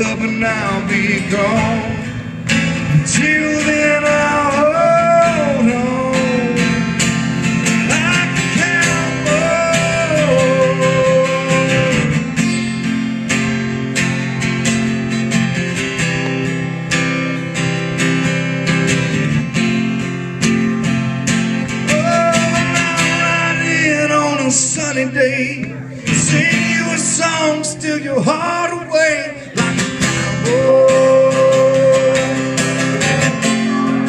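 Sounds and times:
man singing: 0:00.0 - 0:02.2, 0:02.8 - 0:12.2, 0:21.8 - 0:34.0
acoustic guitar strumming: 0:00.0 - 0:34.0.

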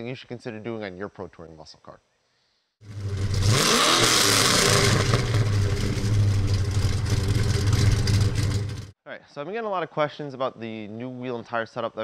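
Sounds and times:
car engine revving and idling: 0:02.8 - 0:08.9.

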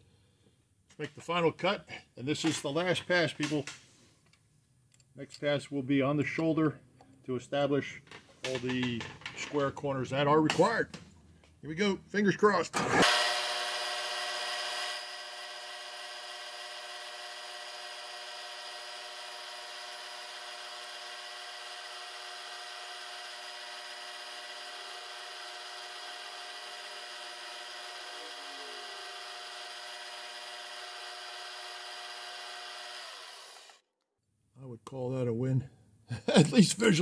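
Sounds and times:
milling machine spindle whine: 0:13.0 - 0:33.8.

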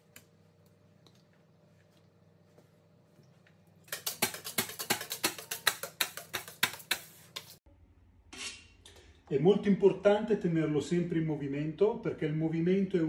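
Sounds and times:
metal scraper scraping countertop: 0:03.9 - 0:07.6.

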